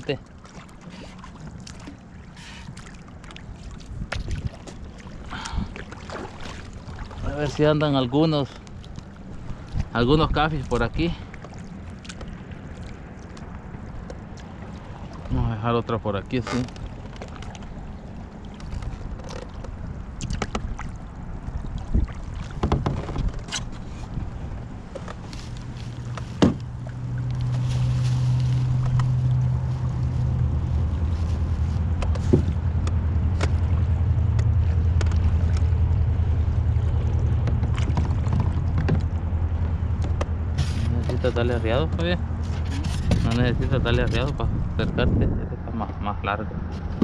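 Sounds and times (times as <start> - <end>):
boat motor humming: 0.0 - 47.0
knocks and clicks of gear: 32.0 - 33.7, 34.3 - 35.7, 37.4 - 44.4.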